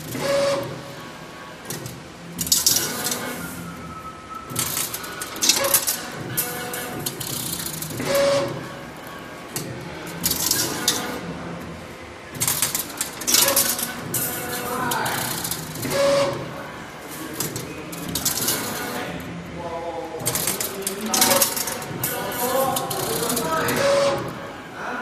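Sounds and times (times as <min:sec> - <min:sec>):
motors whining: 0:00.0 - 0:19.5, 0:20.1 - 0:24.7
machine sharp clicks: 0:01.6 - 0:03.4, 0:04.5 - 0:11.3, 0:12.3 - 0:19.3, 0:20.1 - 0:24.5.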